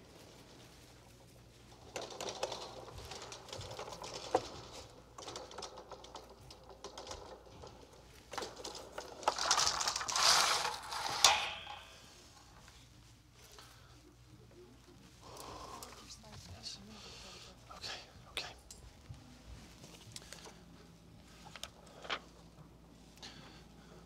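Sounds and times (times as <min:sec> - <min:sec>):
rustling and scraping equipment: 0:00.0 - 0:13.6.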